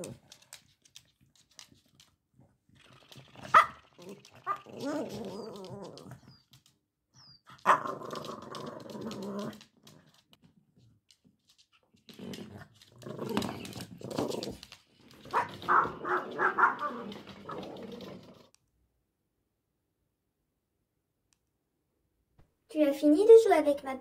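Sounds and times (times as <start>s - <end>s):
dog growling: 2.8s - 6.3s, 7.6s - 10.2s, 12.1s - 18.5s.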